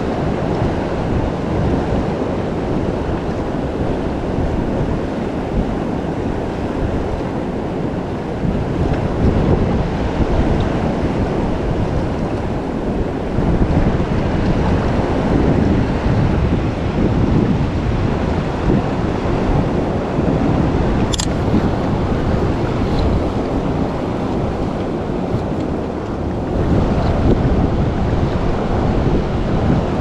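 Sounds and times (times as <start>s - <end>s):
river water rushing: 0.0s - 30.0s
wind rumbling on microphone: 0.0s - 30.0s
sharp click: 21.0s - 21.4s.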